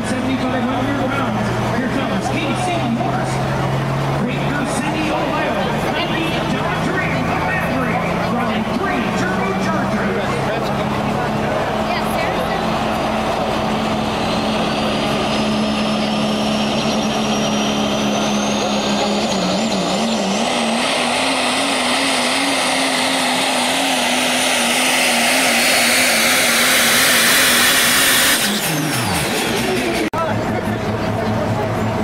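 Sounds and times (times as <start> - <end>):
diesel truck engine under load: 0.0 - 32.0
thin rising whine: 11.4 - 29.8.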